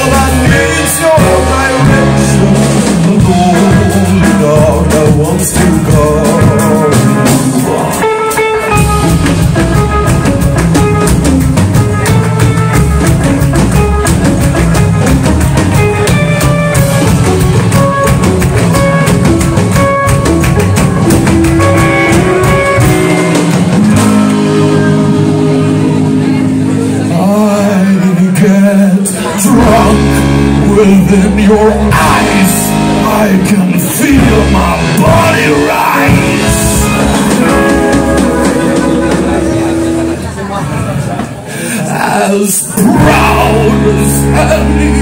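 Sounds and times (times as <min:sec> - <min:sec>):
drum kit: 0:00.0 - 0:45.0
guitar: 0:00.0 - 0:45.0
upright double bass: 0:00.0 - 0:45.0
saxophone: 0:36.1 - 0:40.3.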